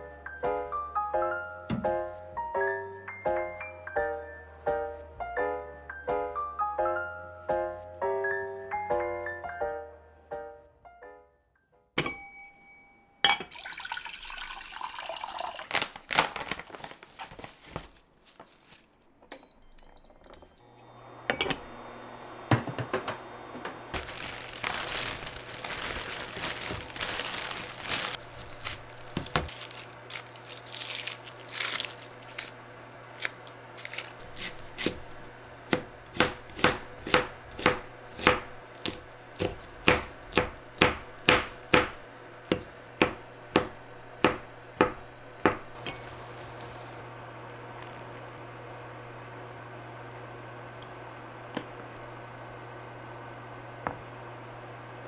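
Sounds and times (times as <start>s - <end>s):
plastic bag crinkling: 15.3s - 19.1s, 24.0s - 35.3s
knife chopping on cutting board: 34.3s - 45.8s.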